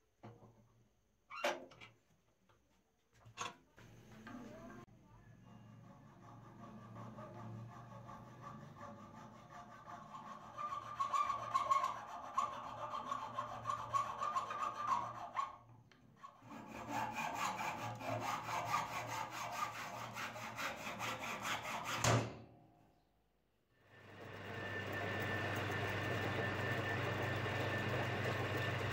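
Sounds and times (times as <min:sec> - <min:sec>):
file rasping on wood: 0:05.8 - 0:15.6, 0:16.2 - 0:22.1.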